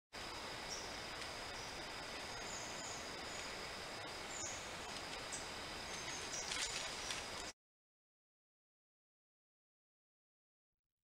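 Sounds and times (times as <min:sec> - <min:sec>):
steady hiss: 0:00.2 - 0:07.5.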